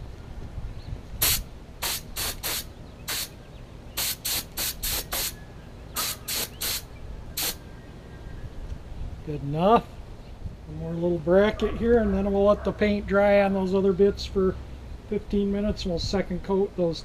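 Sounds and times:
spray gun hissing bursts: 0:01.2 - 0:03.4, 0:04.0 - 0:05.4, 0:06.0 - 0:07.6.

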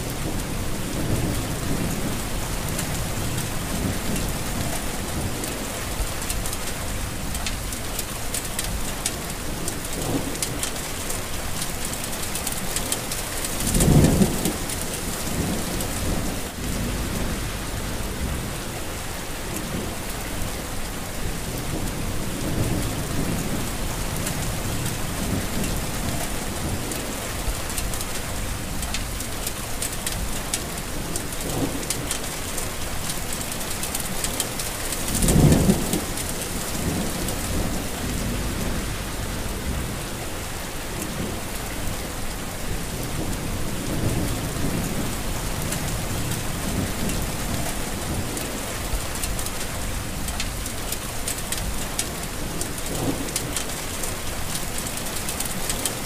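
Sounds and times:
heavy rain falling: 0:00.0 - 0:56.0
low rumble: 0:16.2 - 0:18.6, 0:36.8 - 0:40.2.

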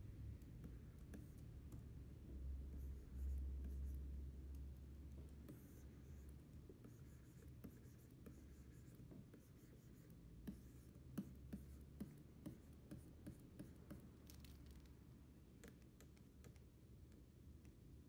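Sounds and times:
low steady hum: 0:00.0 - 0:18.0
stylus scratching on screen: 0:05.5 - 0:14.9.

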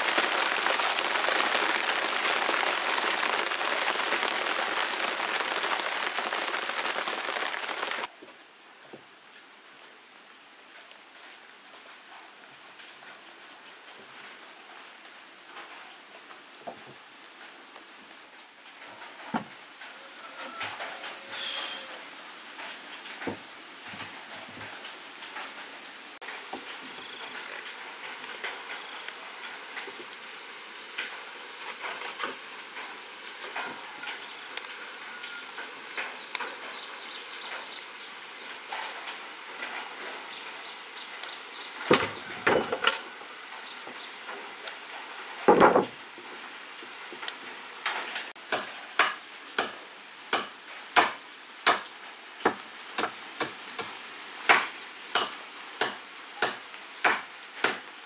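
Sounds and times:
hand tool striking wood: 0:54.5 - 0:57.9.

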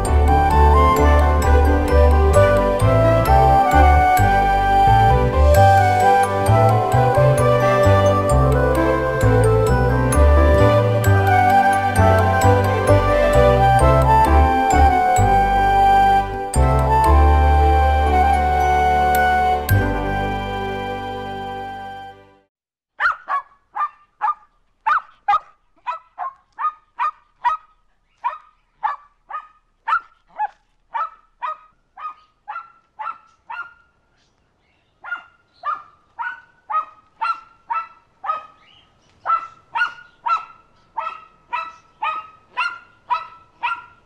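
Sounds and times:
dog barking: 0:23.0 - 0:34.0, 0:35.0 - 0:38.6, 0:39.2 - 0:44.0.

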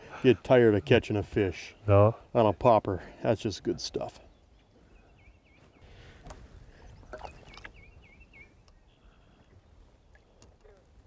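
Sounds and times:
waves lapping against boat hull: 0:06.2 - 0:07.9
bird singing slurred whistles: 0:06.9 - 0:09.0.

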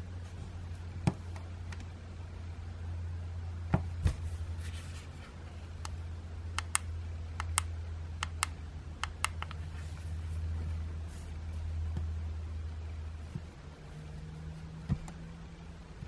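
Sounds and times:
steady low hum: 0:00.0 - 0:16.0
handling knocks: 0:14.8 - 0:15.2.

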